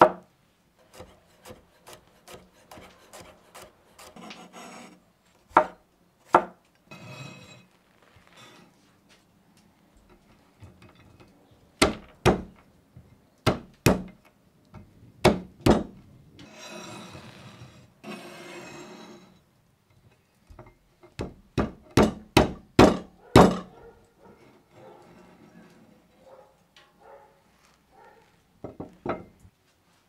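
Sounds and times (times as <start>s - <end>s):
cleaver chopping on wooden board: 5.5s - 6.6s, 11.8s - 12.6s, 13.5s - 14.2s, 15.2s - 15.9s, 21.2s - 23.7s
scraping noise: 16.4s - 19.4s.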